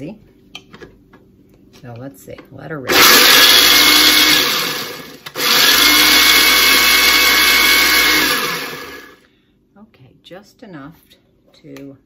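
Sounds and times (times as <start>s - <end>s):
food processor motor whirring: 2.9s - 9.2s.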